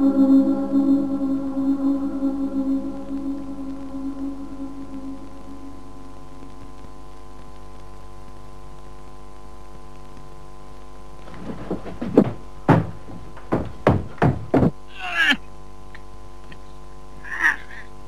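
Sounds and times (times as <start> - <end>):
steady low drone: 0.0 - 7.4
heavy knocks: 11.3 - 14.8.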